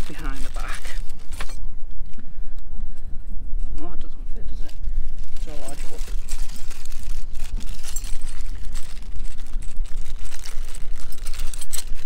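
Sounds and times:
plastic parts rustling and clicking: 0:00.0 - 0:01.6, 0:05.1 - 0:12.0
wind buffeting microphone: 0:00.0 - 0:12.0.

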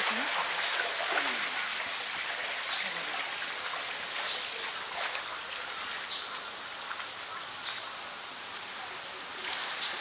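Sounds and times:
running water: 0:00.0 - 0:10.0.

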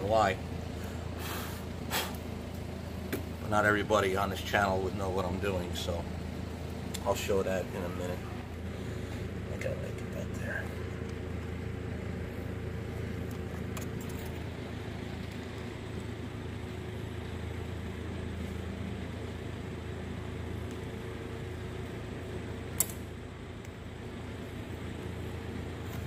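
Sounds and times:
workshop hum: 0:00.0 - 0:26.0
sharp click: 0:22.8 - 0:23.8.

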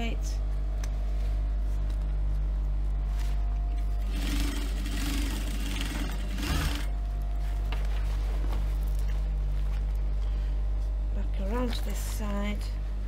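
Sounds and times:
steady electric hum: 0:00.0 - 0:13.0
sewing machine stitching: 0:04.0 - 0:06.9.

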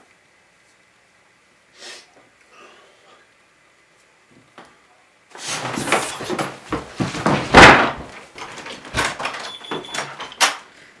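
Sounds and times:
knocks and bumps on a desk: 0:05.5 - 0:09.3.

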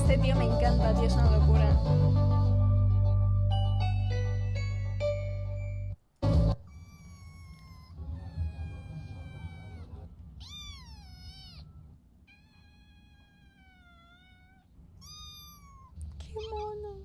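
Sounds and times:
cat meowing: 0:06.7 - 0:16.7.

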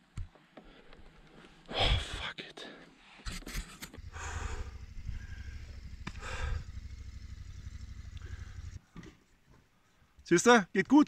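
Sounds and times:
motorcycle engine idling: 0:04.0 - 0:09.1.

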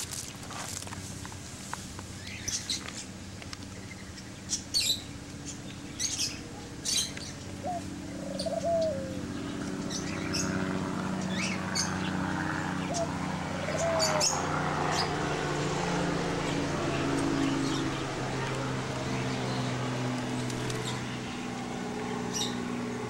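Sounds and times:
steady low hum: 0:01.2 - 0:23.0
parakeets chirping: 0:03.9 - 0:21.4, 0:22.0 - 0:22.9
low falling bird call: 0:06.9 - 0:09.2.

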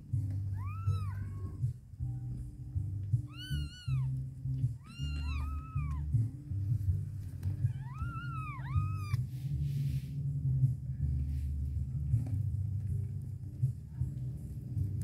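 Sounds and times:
background music: 0:00.0 - 0:15.0
kittens mewing: 0:00.5 - 0:01.8, 0:03.2 - 0:06.3, 0:07.6 - 0:09.2.

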